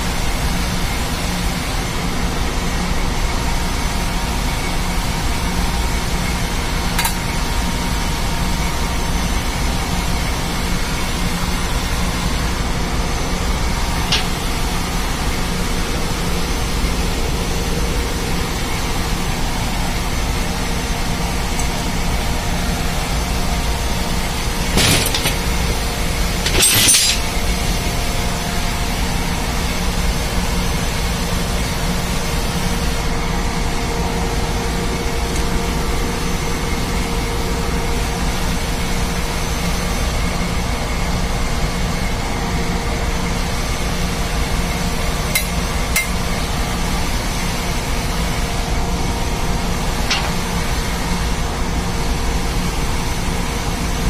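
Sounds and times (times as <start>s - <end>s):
engine-room machinery rumble: 0.0s - 54.0s
hand tools clinking on metal: 24.6s - 27.5s, 50.1s - 50.4s.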